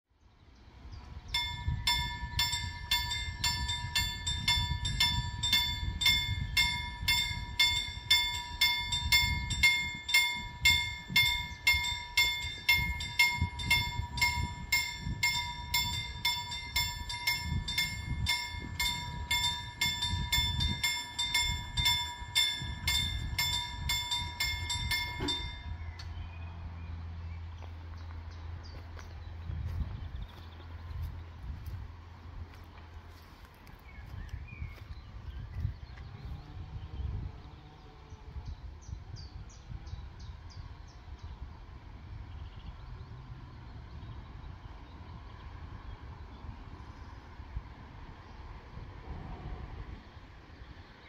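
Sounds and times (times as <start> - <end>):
level crossing warning bell: 1.4 - 26.0.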